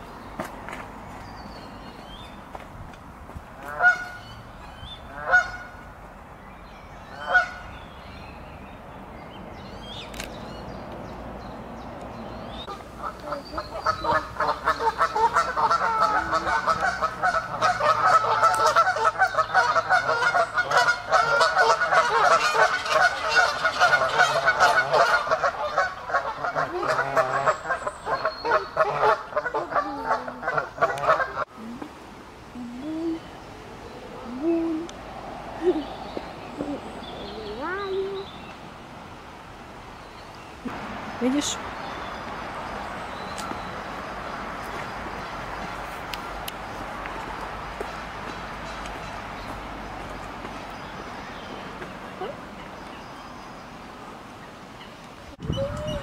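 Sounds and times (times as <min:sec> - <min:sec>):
geese honking: 0:03.7 - 0:04.4, 0:05.1 - 0:05.8, 0:07.1 - 0:07.7, 0:12.7 - 0:31.5.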